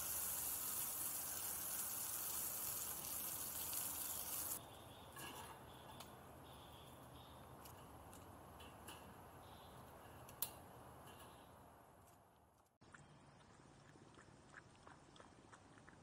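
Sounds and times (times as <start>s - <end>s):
hose nozzle spraying water: 0.0s - 4.6s.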